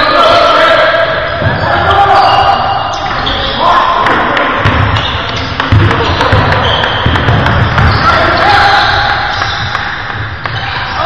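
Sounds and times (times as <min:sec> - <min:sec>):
players calling out: 0:00.0 - 0:11.0
sneakers squeaking: 0:01.0 - 0:11.0
basketball bouncing on hardwood: 0:04.6 - 0:08.1.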